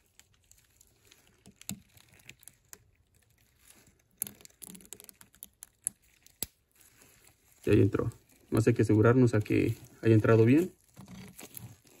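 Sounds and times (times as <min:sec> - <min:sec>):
small clicks and scrapes of ring: 0:00.0 - 0:07.6, 0:10.8 - 0:12.0.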